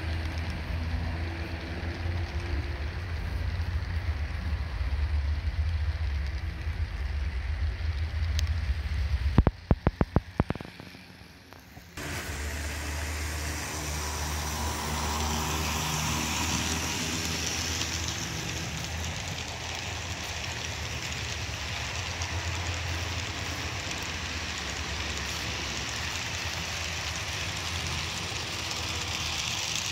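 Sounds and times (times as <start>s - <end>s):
model train rolling on track: 0.0s - 29.9s.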